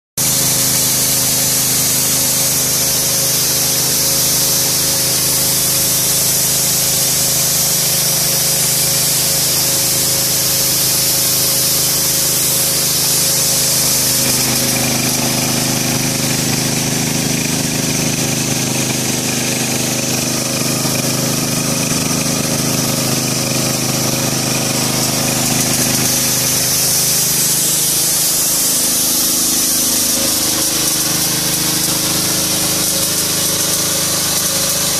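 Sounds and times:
hiss of air and mist spraying: 0.2s - 16.7s, 24.8s - 34.9s
blower engine hum: 0.2s - 34.9s.

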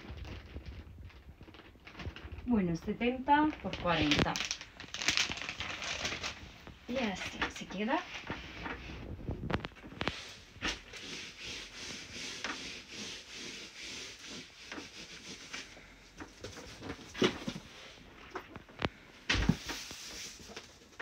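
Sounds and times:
hands rubbing fabric: 10.0s - 15.7s.

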